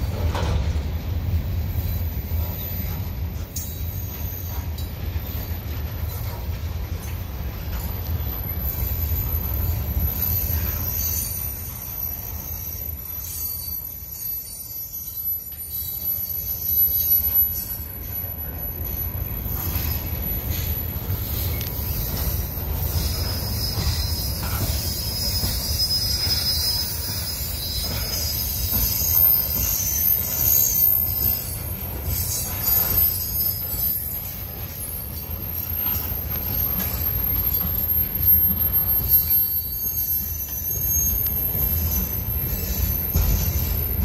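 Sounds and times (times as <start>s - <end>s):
train wheels rumbling on rails: 0.0s - 44.0s
high-pitched wheel squeal: 8.7s - 17.9s, 21.2s - 44.0s.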